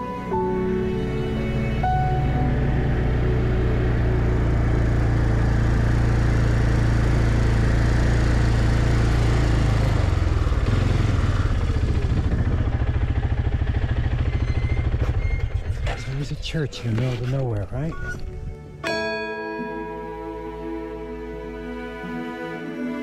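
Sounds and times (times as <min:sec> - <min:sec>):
quad bike engine running: 0:01.5 - 0:16.6.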